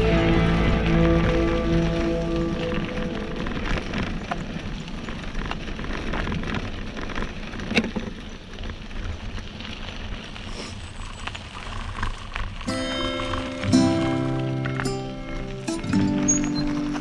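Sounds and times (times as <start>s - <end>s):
bicycle tyres on gravel: 0.0s - 17.0s.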